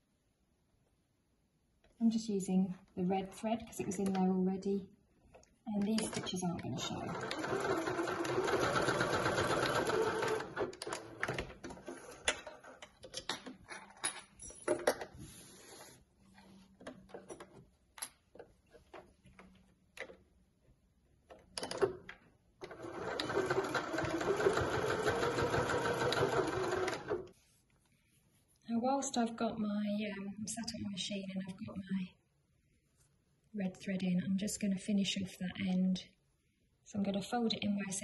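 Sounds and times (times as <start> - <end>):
person speaking: 2.0 - 4.9, 5.6 - 7.3
sewing machine stitching: 5.9 - 12.8, 22.6 - 27.3.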